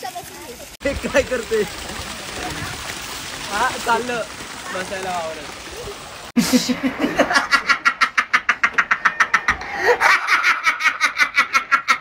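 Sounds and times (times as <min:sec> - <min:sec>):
man cackling with laughter: 0:06.4 - 0:12.0.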